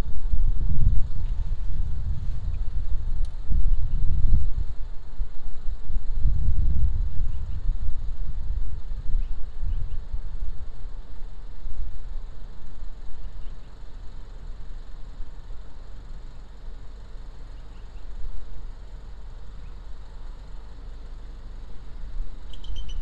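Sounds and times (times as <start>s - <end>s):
wind buffeting microphone: 0.0s - 13.5s
faint bird chirps: 7.1s - 7.8s, 9.2s - 10.1s, 13.1s - 13.9s, 17.4s - 18.2s, 19.5s - 19.9s, 22.4s - 23.0s.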